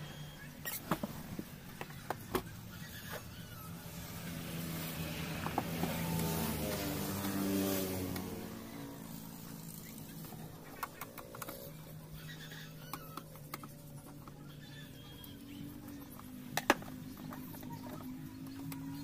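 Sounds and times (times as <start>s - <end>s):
motor engine running: 2.4s - 19.0s.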